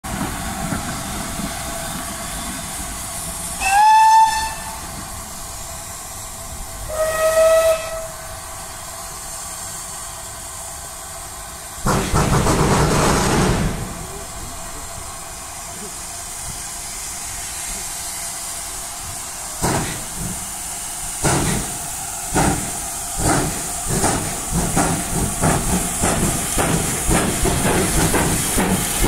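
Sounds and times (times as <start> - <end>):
rush of steam and exhaust: 0.0 - 29.0
steam hissing: 0.1 - 29.0
steam locomotive whistles: 1.8 - 5.2, 6.8 - 8.5.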